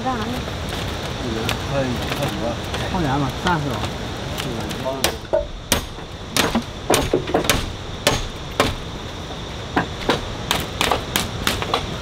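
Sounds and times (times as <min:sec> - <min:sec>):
tool knocking on wood: 0:05.0 - 0:08.8.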